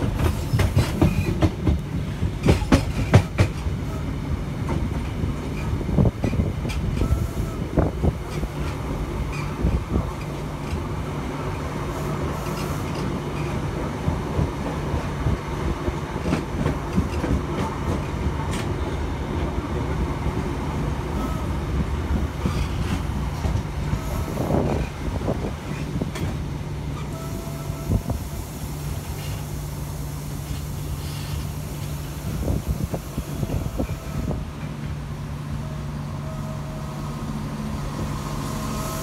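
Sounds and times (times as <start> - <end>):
clicks and knocks from track: 0.0 - 3.7
train wheels rumbling on rails: 0.0 - 39.0.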